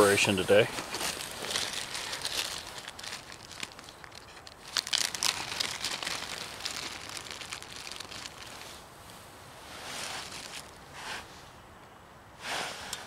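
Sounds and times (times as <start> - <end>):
plastic packaging crinkling: 0.2 - 8.7, 10.1 - 10.8.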